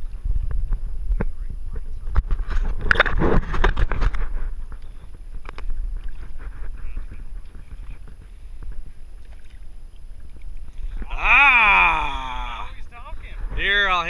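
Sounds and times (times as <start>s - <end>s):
steady low rumble: 0.0s - 14.0s
water splashing and sloshing: 0.0s - 14.0s.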